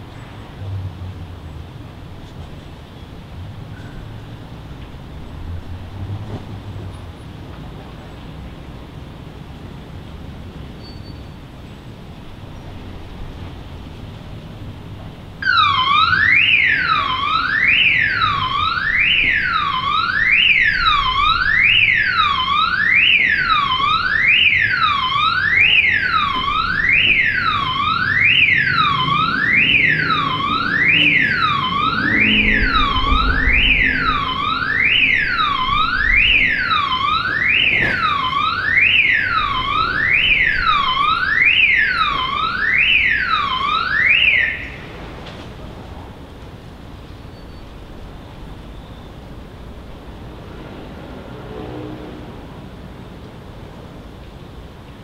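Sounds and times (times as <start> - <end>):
low traffic rumble: 0.0 - 55.0
electronic alarm siren: 15.4 - 44.8.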